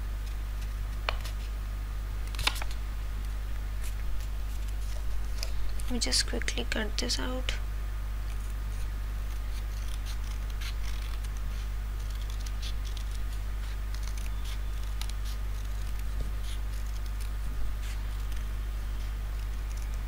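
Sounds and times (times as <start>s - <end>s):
steady low hum: 0.0s - 20.0s
scissors snipping paper: 2.2s - 2.7s, 8.3s - 20.0s.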